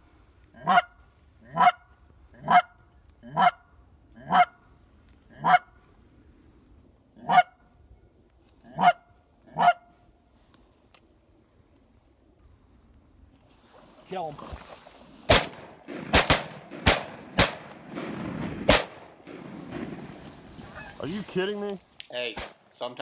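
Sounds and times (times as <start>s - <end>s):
goose honking: 0.6s - 1.8s, 2.4s - 3.6s, 4.2s - 4.6s, 5.3s - 5.7s, 7.2s - 7.6s, 8.7s - 9.9s, 20.6s - 21.2s.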